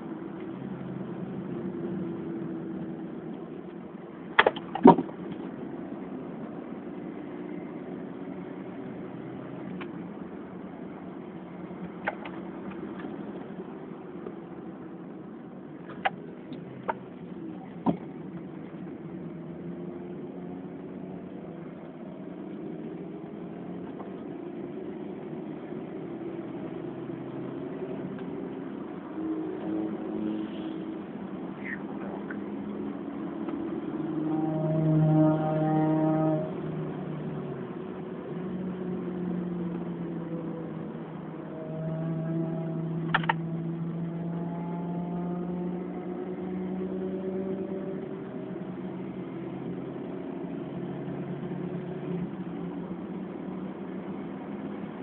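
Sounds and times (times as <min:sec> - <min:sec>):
car engine from inside cabin: 0:00.0 - 0:55.0.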